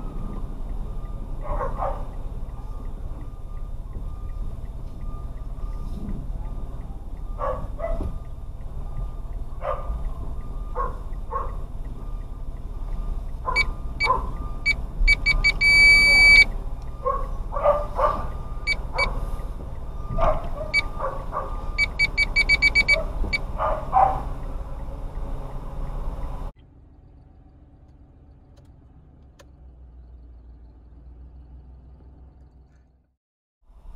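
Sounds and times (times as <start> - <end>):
low vehicle hum: 0.0 - 33.9
electronic beeping: 13.6 - 16.5, 21.6 - 23.4.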